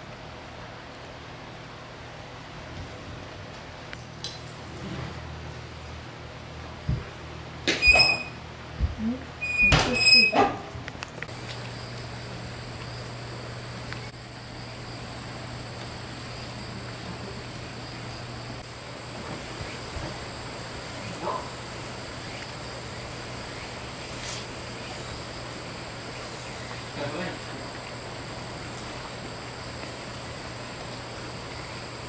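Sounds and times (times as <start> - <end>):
rain hiss: 11.2 - 32.0
insects trilling: 11.3 - 32.0.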